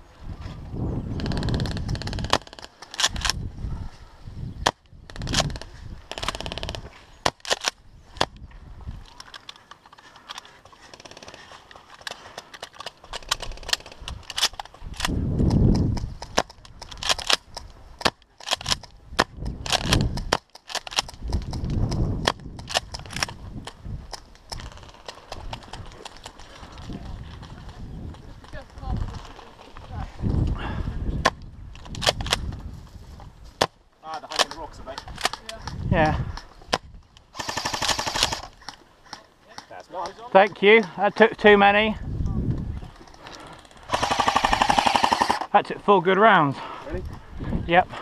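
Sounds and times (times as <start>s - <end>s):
airsoft guns firing: 37.3s - 38.5s, 43.8s - 45.5s.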